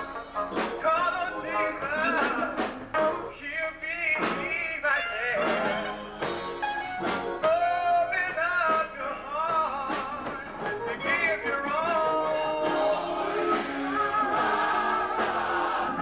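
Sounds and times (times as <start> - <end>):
choir singing gospel: 0.0 - 3.3, 4.2 - 6.4, 8.7 - 16.0
man singing lead: 0.7 - 6.2, 7.4 - 14.4.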